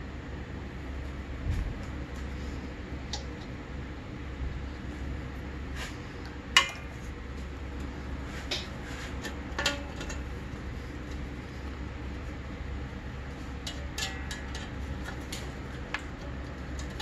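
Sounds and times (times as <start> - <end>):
metal springs clinking: 13.6 - 15.4.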